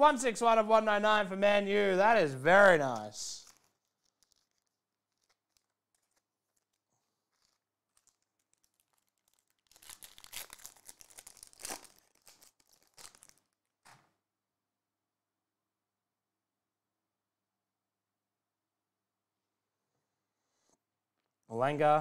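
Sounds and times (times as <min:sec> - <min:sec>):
foil wrapper crinkling and tearing: 0:03.3 - 0:13.9.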